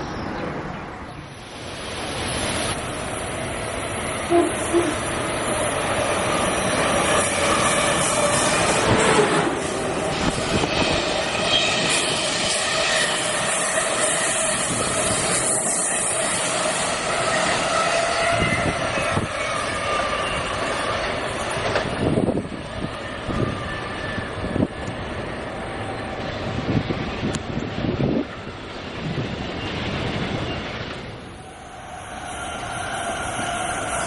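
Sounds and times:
passenger train rushing past: 0.0s - 34.0s
ringing whine of wheels on rails: 0.0s - 34.0s
wheels clacking over rail joints: 19.0s - 22.4s.

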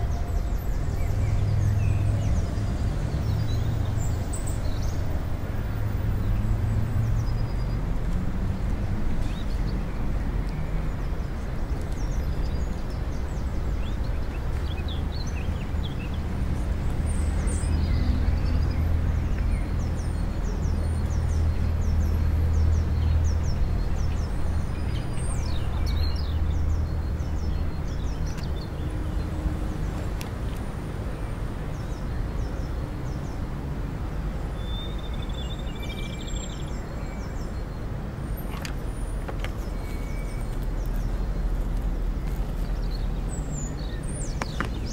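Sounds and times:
small birds chirping: 34.5s - 44.9s.

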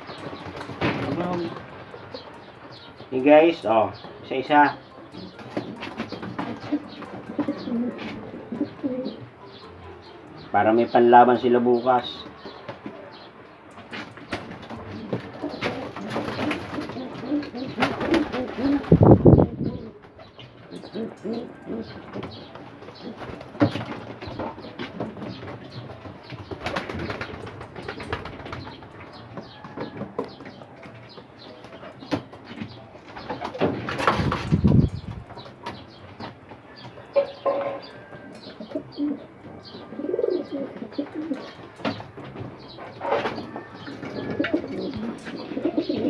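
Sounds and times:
wings flapping: 0.0s - 2.3s, 5.3s - 8.2s, 13.9s - 20.2s, 20.9s - 29.7s, 33.1s - 35.8s
pigeons cooing: 0.0s - 46.0s.

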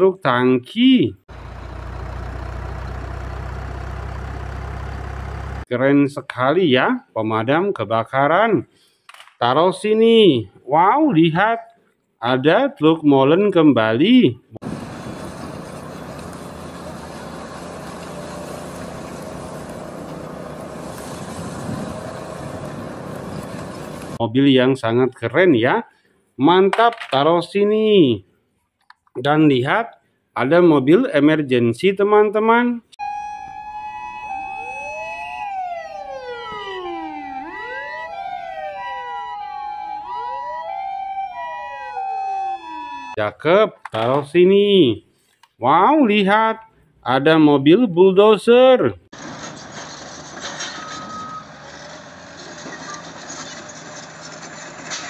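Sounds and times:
truck engines idling: 1.3s - 5.7s, 14.6s - 24.2s, 49.2s - 55.0s
two-tone hi-lo siren: 33.0s - 43.2s
wailing sirens: 33.0s - 43.2s.

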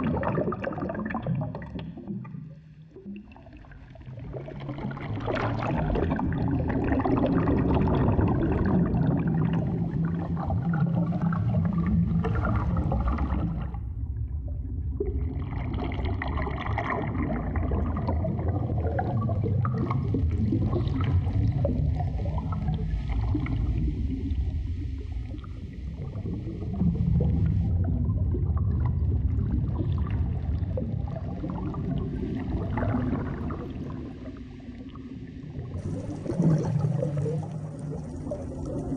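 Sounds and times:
low underwater rumble: 0.0s - 38.9s
underwater gurgling and bubbling: 0.0s - 38.9s.

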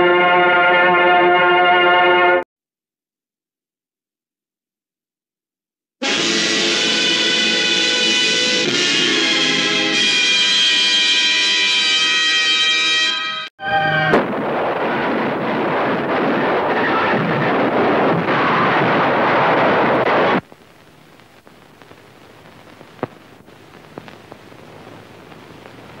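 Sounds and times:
cannon blast: 14.1s - 20.4s
film hiss with crackles: 14.2s - 26.0s.

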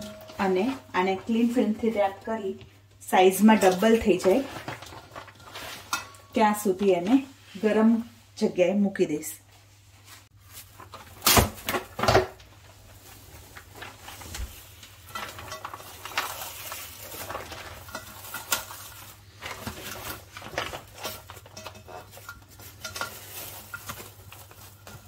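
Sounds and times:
cling film crinkling: 12.4s - 25.0s.

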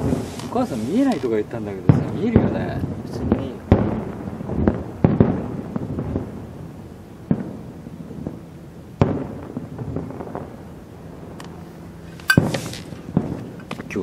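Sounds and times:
firework shells booming: 0.0s - 6.4s, 9.0s - 10.6s, 12.2s - 14.0s
firework crackling: 0.0s - 14.0s.

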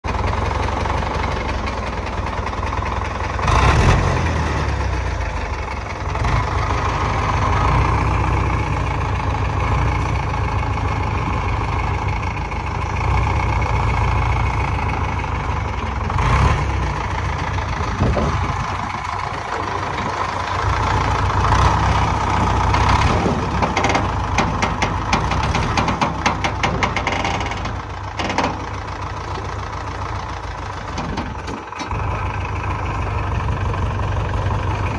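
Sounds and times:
diesel engine rumbling: 0.0s - 34.9s
sharp knocks: 23.1s - 28.8s.

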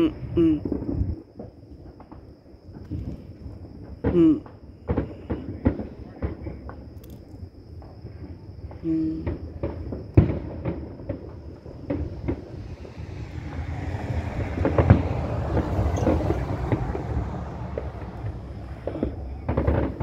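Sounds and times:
fireworks bangs and crackling: 0.5s - 20.0s.

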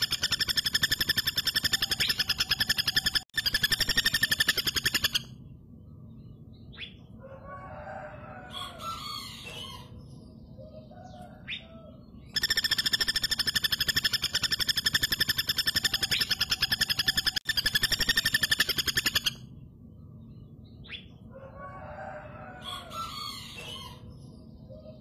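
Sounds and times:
woodpecker rattling call: 0.0s - 5.3s, 12.3s - 19.4s.

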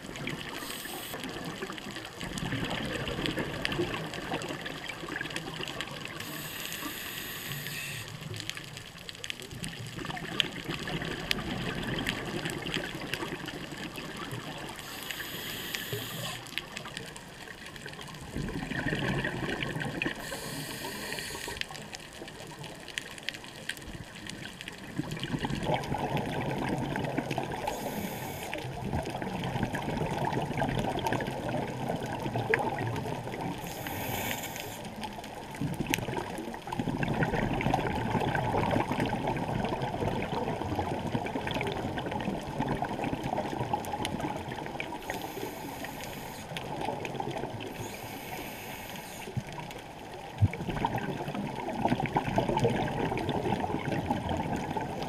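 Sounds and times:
bubbles rushing and gurgling: 0.0s - 55.0s
scuba regulator breathing: 0.5s - 1.2s, 6.2s - 8.2s, 14.8s - 16.5s, 20.1s - 21.8s, 27.6s - 28.6s, 33.6s - 34.9s, 45.0s - 46.6s, 47.7s - 49.4s.

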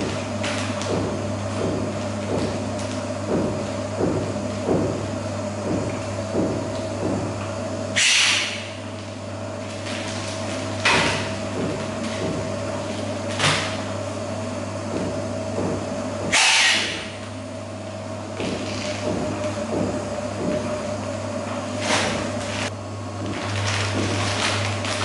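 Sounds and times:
band sealer motor hum: 0.0s - 25.0s.

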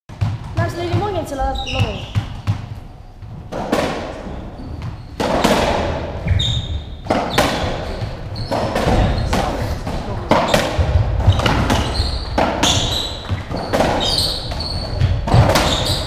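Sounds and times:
ball hits echoing on court: 0.1s - 16.0s
shoes squeaking on wooden floor: 0.5s - 16.0s.

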